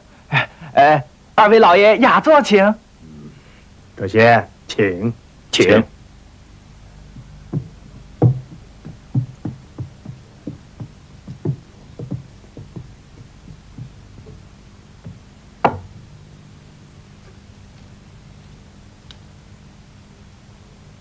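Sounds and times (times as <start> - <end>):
low steady hum: 0.0 - 21.0
footsteps of people walking: 7.0 - 16.1
sharp knock: 7.2 - 14.4, 15.0 - 15.9.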